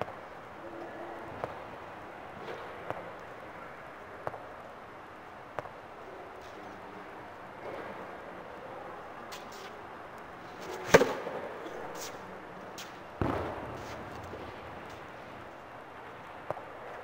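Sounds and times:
tennis racket hitting ball: 10.7 - 11.3.

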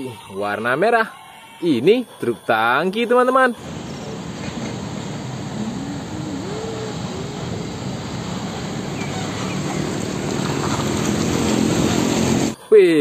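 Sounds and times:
traffic noise: 0.0 - 13.0
truck diesel engine passing: 3.6 - 12.7.

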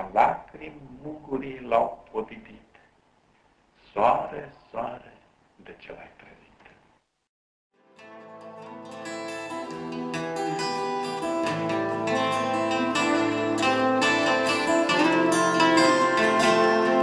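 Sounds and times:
plucked string melody: 7.8 - 17.0.

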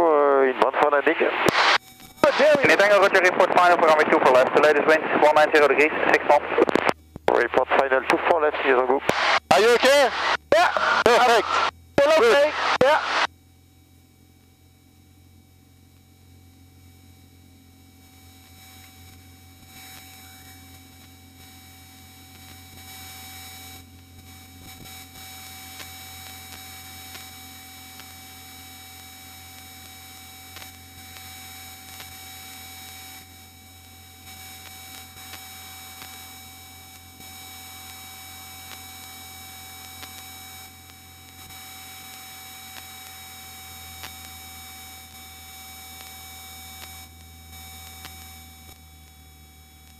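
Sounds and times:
aircraft engine drone: 0.0 - 37.2
headset electronic whine: 0.0 - 49.9.

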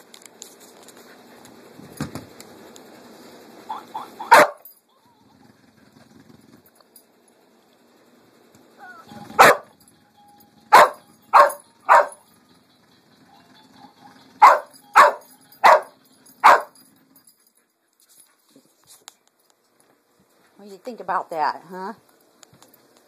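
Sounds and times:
dog barking loudly: 3.7 - 4.7, 9.3 - 9.8, 10.7 - 12.2, 14.4 - 16.8.

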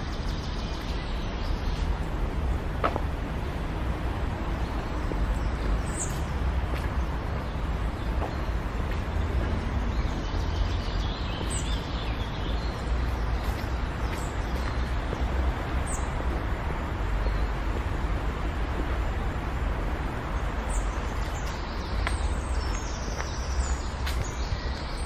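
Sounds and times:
small birds chirping: 0.0 - 25.0
steady low rumble: 0.0 - 25.0.

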